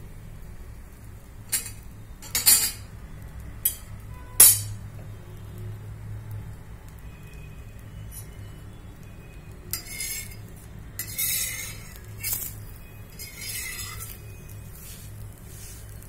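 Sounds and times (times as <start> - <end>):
flatbread hissing on a pan: 0.0 - 16.0
metal utensil clinking on pan: 1.5 - 2.9, 3.6 - 4.8, 9.7 - 10.4, 11.0 - 14.3.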